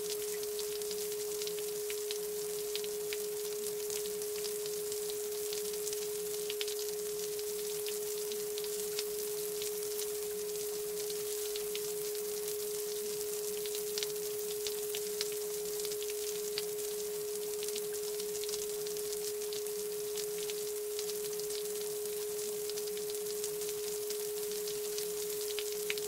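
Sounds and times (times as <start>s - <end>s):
steady sine tone: 0.0s - 13.3s.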